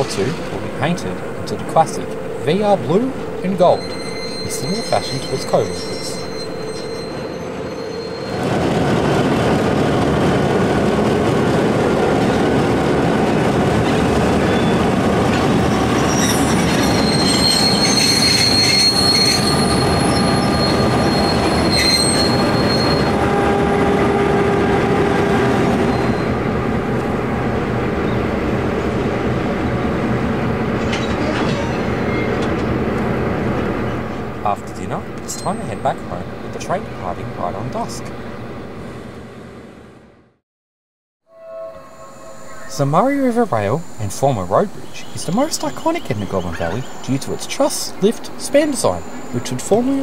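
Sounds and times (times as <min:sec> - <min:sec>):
train wheels squealing: 0:00.0 - 0:08.8, 0:13.9 - 0:23.2, 0:25.8 - 0:26.4, 0:30.8 - 0:32.7, 0:35.3 - 0:36.0, 0:41.3 - 0:47.3
diesel locomotives rolling past: 0:00.0 - 0:40.4, 0:41.4 - 0:50.0.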